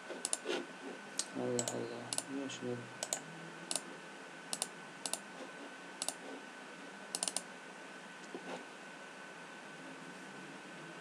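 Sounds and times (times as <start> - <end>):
faint steady whine: 0.0 - 11.0
computer mouse clicking: 0.2 - 0.6, 1.2 - 2.3, 3.0 - 3.8, 4.5 - 5.3, 6.0 - 6.2, 7.1 - 7.5.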